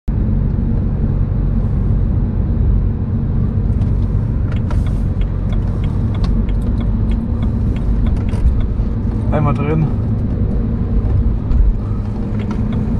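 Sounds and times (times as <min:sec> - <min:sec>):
car rumble: 0:00.1 - 0:12.9
light clicks and ticks: 0:04.5 - 0:09.2.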